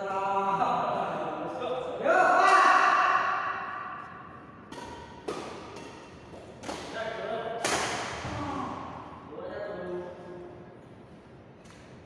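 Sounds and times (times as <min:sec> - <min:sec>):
rackets hitting shuttlecock: 0:04.0 - 0:08.9.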